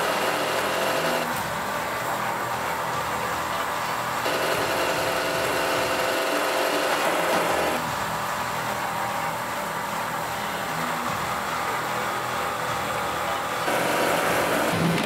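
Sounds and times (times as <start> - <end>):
treadmill belt running: 0.0 - 1.6, 4.2 - 8.2, 13.6 - 15.0
electric motors and gearing whirring: 0.0 - 15.0.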